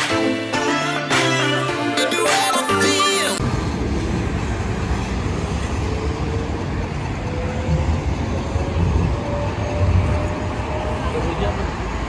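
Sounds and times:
low traffic rumble: 3.4s - 12.0s
tram motor whine: 3.4s - 12.0s.

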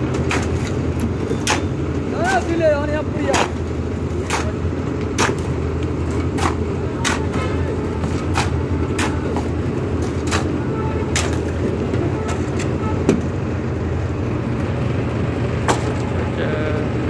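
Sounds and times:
shovels knocking and scraping metal: 0.0s - 13.2s
low engine drone: 0.0s - 17.0s.

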